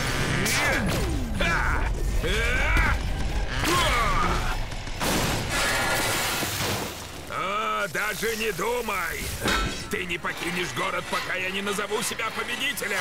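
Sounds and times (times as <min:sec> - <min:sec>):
action music: 0:00.0 - 0:06.3
crash: 0:04.8 - 0:07.2.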